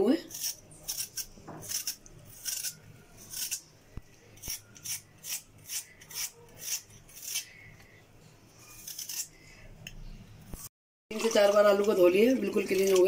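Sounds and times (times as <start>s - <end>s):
vegetable peeler scraping potato: 0.1s - 3.7s, 4.3s - 7.9s, 8.6s - 9.7s.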